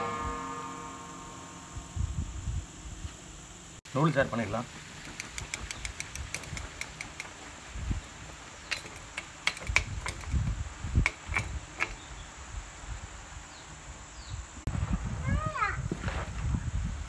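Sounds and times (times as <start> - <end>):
crackling in a wok: 4.0 - 12.1.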